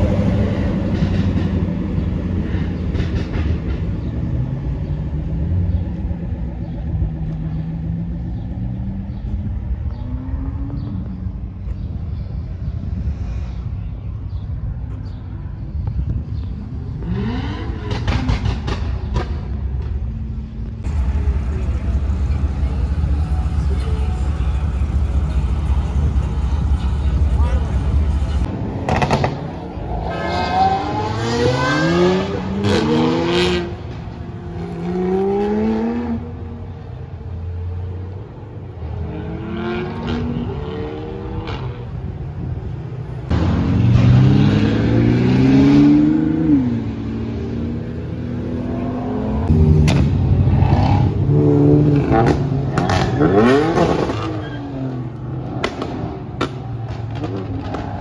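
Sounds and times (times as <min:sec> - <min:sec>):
car engines revving: 0:00.0 - 0:58.0
low engine rumble: 0:18.4 - 0:28.6.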